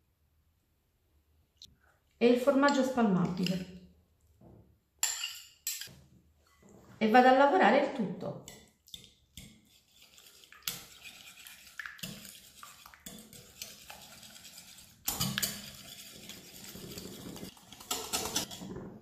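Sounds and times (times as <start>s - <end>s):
whisk scraping glass bowl: 9.4s - 19.0s.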